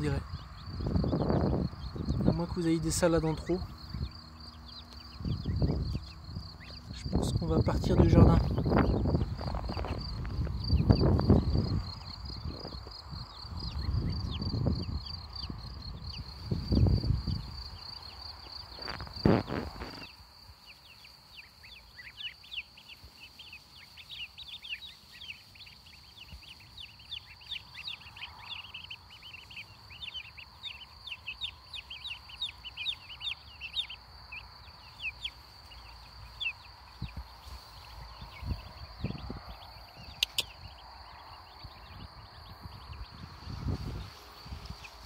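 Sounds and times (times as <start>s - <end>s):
chicks peeping: 0.0s - 45.0s
high insect trill: 0.0s - 45.0s
thumps and rustles: 18.8s - 20.1s.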